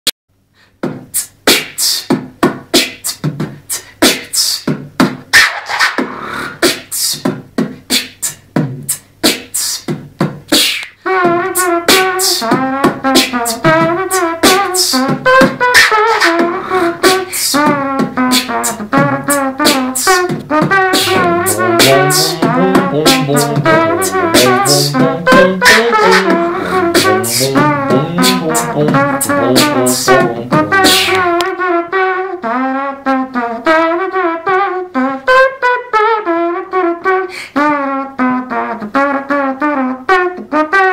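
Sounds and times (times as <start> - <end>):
beatboxed drum beat: 0.7 - 31.6
mouth-imitated trumpet melody: 11.0 - 40.9
mouth-made bass line: 20.5 - 31.4.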